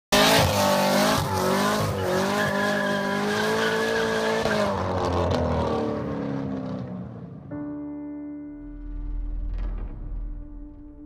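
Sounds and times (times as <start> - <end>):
car engine at high revs: 0.1 - 7.5
tyres squealing: 0.4 - 4.7.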